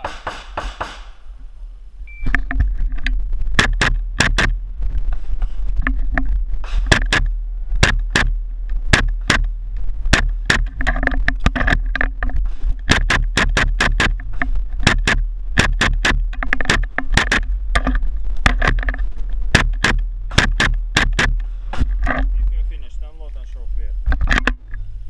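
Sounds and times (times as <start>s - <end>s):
rapid pistol fire: 3.6s - 4.6s, 6.7s - 9.5s, 14.8s - 17.5s, 19.5s - 21.4s.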